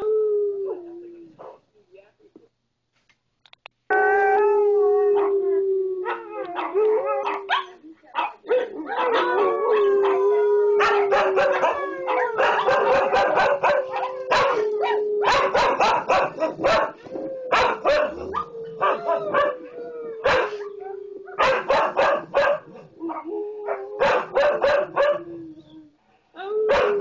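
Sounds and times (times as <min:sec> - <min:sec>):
dogs howling: 0:03.9 - 0:07.8, 0:08.5 - 0:25.8, 0:26.6 - 0:27.0
dogs barking and yipping: 0:06.5 - 0:19.6, 0:21.4 - 0:23.2, 0:24.0 - 0:25.3.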